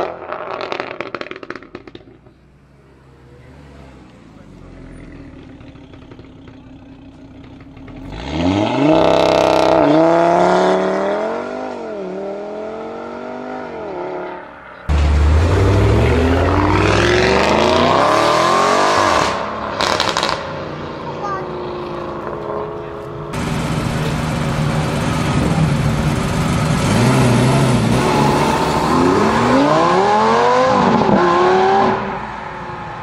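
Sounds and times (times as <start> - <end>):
performance car accelerating hard: 7.8 - 33.0
car engine revving hard: 8.0 - 14.3, 14.9 - 20.5, 22.2 - 32.2.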